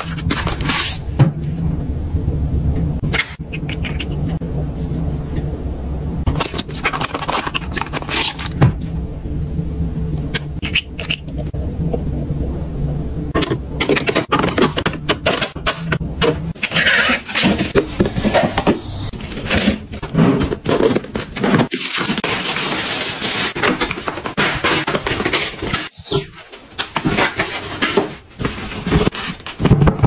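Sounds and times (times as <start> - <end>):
low steady hum: 0.0 - 30.0
plastic shrink wrap crinkling: 20.7 - 29.9.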